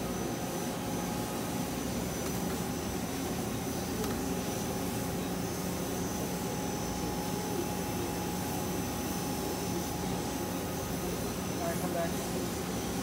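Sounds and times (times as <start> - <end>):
lathe mechanical hum: 0.0 - 13.0
thin high whine: 0.0 - 13.0.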